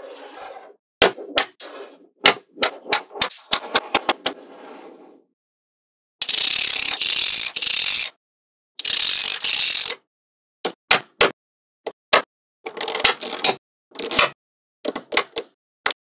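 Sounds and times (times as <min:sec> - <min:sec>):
rattles of many clicks: 0:12.6 - 0:16.0.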